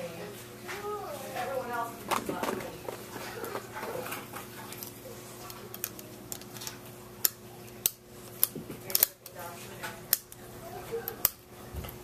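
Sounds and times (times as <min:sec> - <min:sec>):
plastic pieces clicking on pegboard: 0:05.7 - 0:09.4.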